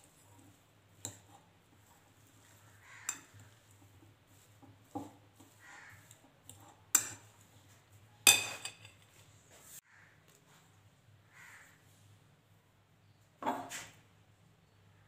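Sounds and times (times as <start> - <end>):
fork clinking against glass bowl: 3.0 - 3.5, 8.3 - 9.0.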